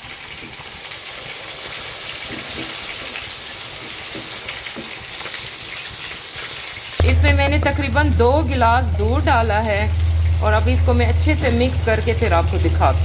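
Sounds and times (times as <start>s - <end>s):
milk sizzling in a hot pan: 0.0s - 13.0s.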